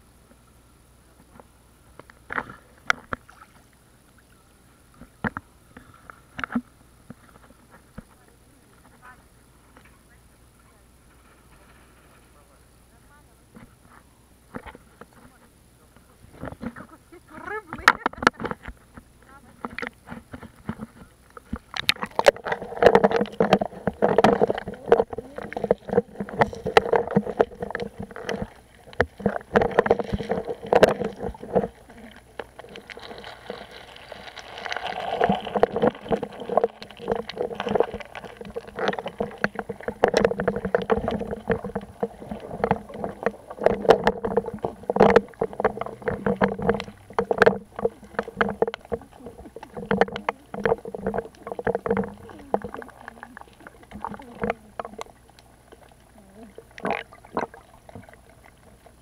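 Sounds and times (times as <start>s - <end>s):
muffled underwater sloshing: 1.2s - 59.0s
irregular clicks and knocks: 35.4s - 52.8s.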